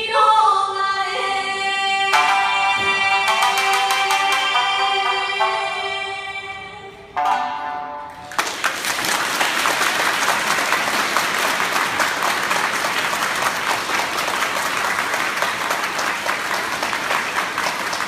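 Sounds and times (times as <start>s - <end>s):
held music note: 2.1s - 8.3s
audience applause: 8.3s - 18.0s.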